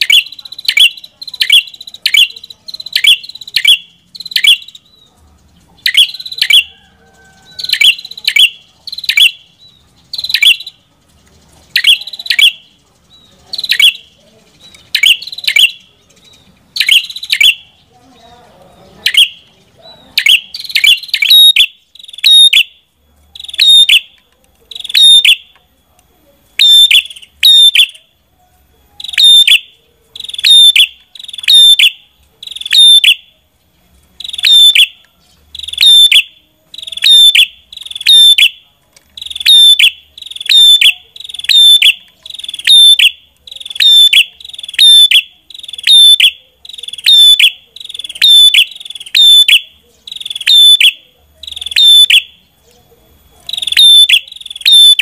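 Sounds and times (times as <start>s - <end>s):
bird calling sharp high notes: 0.0s - 5.0s, 11.7s - 12.8s, 14.8s - 15.9s, 20.1s - 22.8s, 23.4s - 25.5s, 26.6s - 28.0s, 29.0s - 33.3s, 34.2s - 35.0s, 35.6s - 38.6s, 39.2s - 52.4s, 53.4s - 55.0s.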